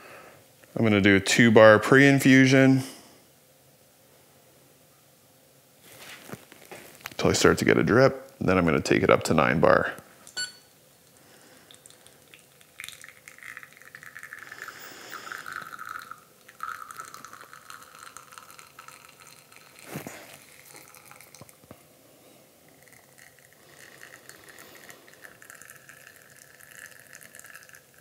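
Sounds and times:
espresso trickling into glass: 11.7s - 21.8s, 22.7s - 28.0s.

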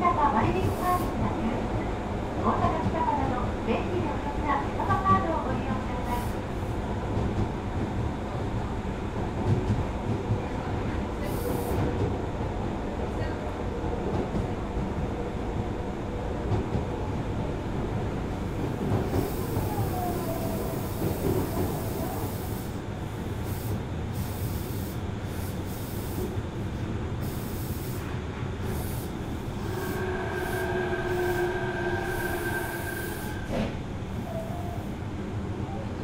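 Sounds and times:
train wheel and track rumble: 0.0s - 36.0s
train motor whining: 29.4s - 34.4s
train wheel squeal: 29.6s - 35.0s.

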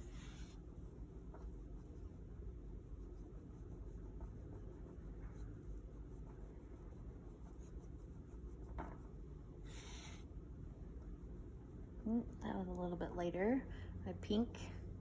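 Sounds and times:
paintbrush brushing on canvas: 0.0s - 10.3s
low background hum: 0.0s - 15.0s.

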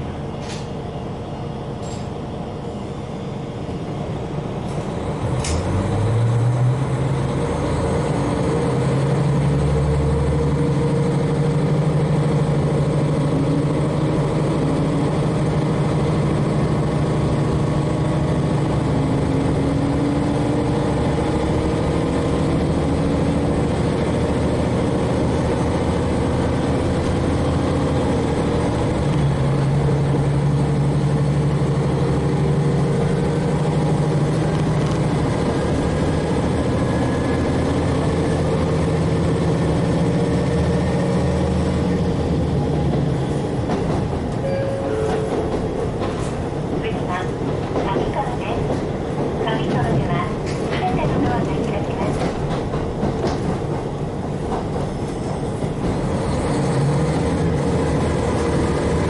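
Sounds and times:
diesel railcar engine: 0.0s - 59.0s
wheels rumbling on rails: 0.0s - 59.0s.

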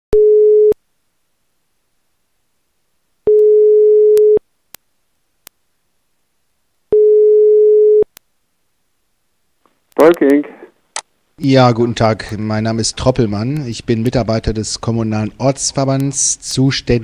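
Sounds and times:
telephone ringing tone: 0.2s - 0.8s, 3.3s - 4.4s, 6.9s - 8.1s.

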